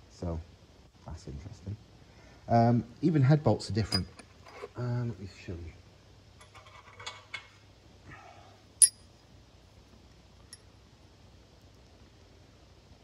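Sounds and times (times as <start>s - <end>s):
metal parts clinking: 3.9s - 4.5s, 8.8s - 9.1s.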